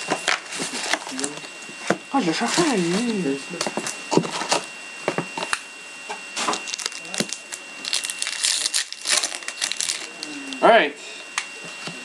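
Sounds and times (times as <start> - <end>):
foil pack crinkling and tearing: 6.5 - 10.6.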